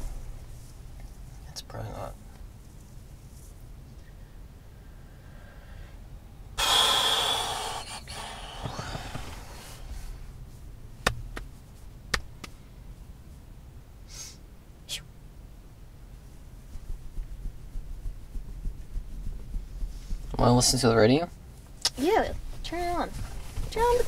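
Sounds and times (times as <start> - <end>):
person sighing heavily: 6.6 - 9.6.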